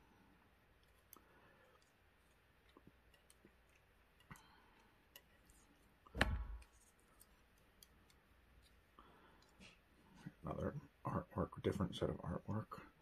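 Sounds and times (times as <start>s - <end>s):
tweezers clicking and tapping: 1.8s - 8.8s
short thump: 6.2s - 6.6s.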